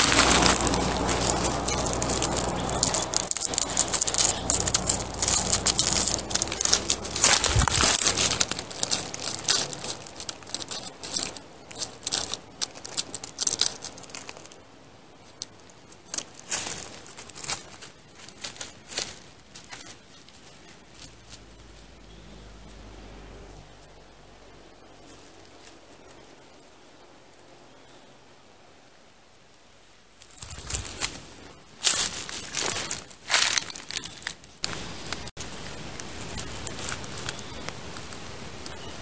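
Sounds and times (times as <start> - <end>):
footsteps crunching dry leaves: 0.0 - 14.6, 15.2 - 22.8, 30.2 - 39.0.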